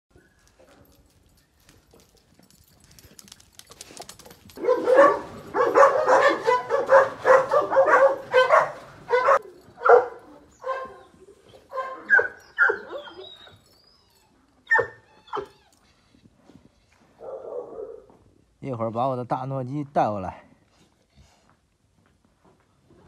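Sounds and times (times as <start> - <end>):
dog barking: 4.6 - 11.1, 11.7 - 13.2, 14.7 - 15.0.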